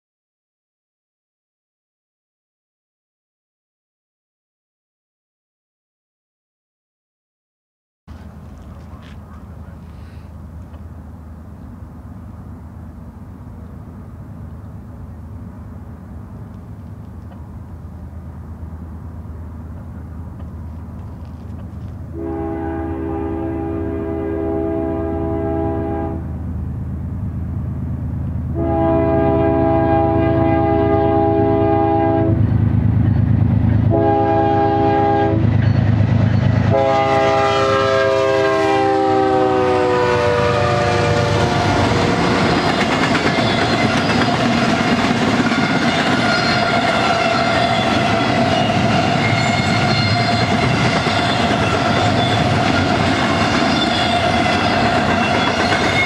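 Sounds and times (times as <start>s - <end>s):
locomotive air horn: 22.1s - 26.3s, 28.5s - 32.4s, 33.9s - 35.4s, 36.7s - 42.6s
train wheels clattering: 41.8s - 56.0s.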